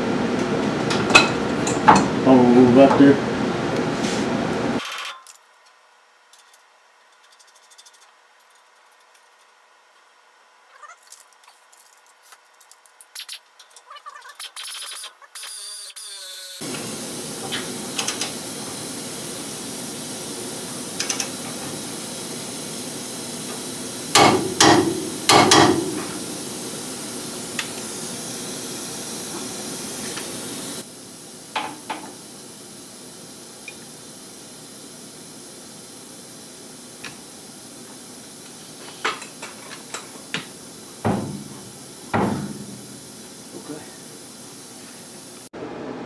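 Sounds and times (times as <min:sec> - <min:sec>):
steady hiss: 0:16.6 - 0:45.5
loud metallic impacts: 0:24.2 - 0:26.2.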